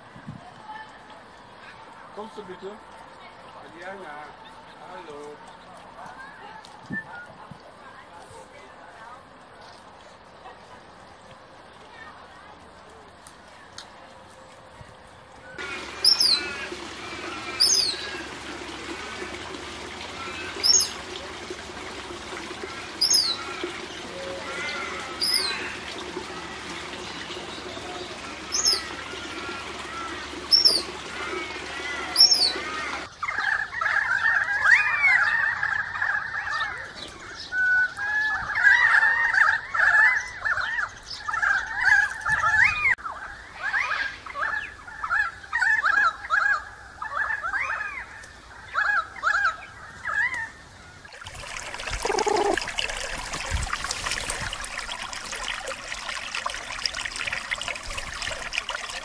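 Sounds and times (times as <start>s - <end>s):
galahs chattering: 15.6s - 33.1s, 51.6s - 54.6s
high falling chirps: 51.8s - 52.6s.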